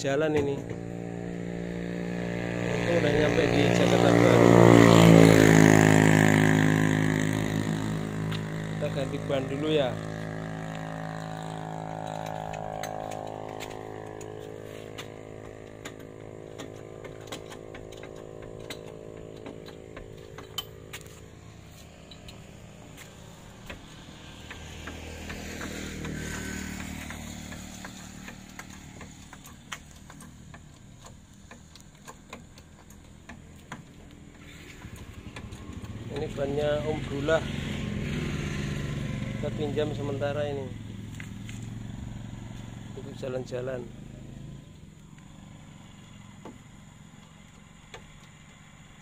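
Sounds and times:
vehicle engine running: 0:00.0 - 0:49.0
vehicle passing by: 0:00.0 - 0:49.0
tools clicking and knocking: 0:11.8 - 0:36.6.

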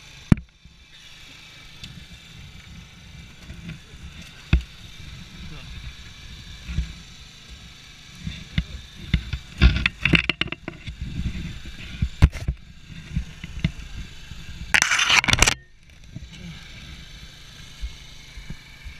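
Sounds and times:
loud scraping rush: 0:01.9 - 0:15.7.

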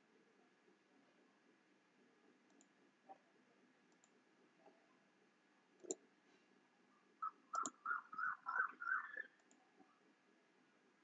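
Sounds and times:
computer mouse clicks: 0:02.5 - 0:02.7, 0:03.9 - 0:04.2, 0:05.8 - 0:06.0, 0:07.5 - 0:07.8.

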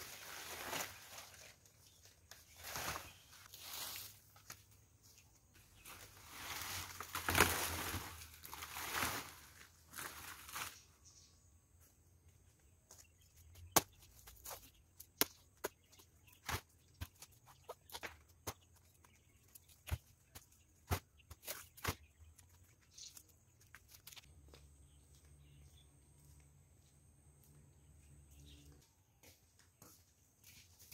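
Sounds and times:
leaves rustling and dragged over grass: 0:00.0 - 0:01.6, 0:02.5 - 0:04.2, 0:05.8 - 0:10.9.

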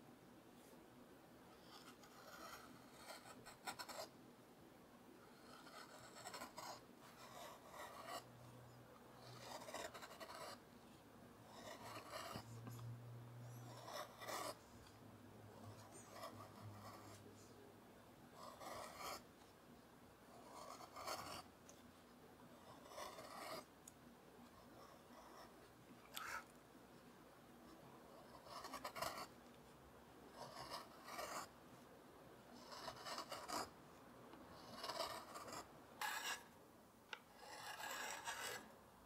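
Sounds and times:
carving gouge scraping wood: 0:01.8 - 0:04.1, 0:05.4 - 0:08.3, 0:09.2 - 0:10.6, 0:11.5 - 0:12.5, 0:13.7 - 0:14.6, 0:18.4 - 0:19.2, 0:22.7 - 0:23.6, 0:34.6 - 0:36.4, 0:37.4 - 0:38.6.

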